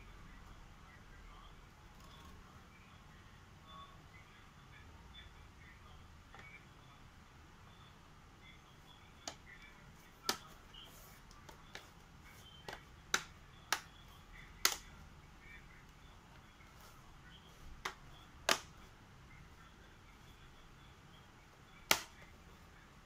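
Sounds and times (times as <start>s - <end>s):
plastic clips snapping into place: 14.6s - 14.9s, 21.9s - 22.2s.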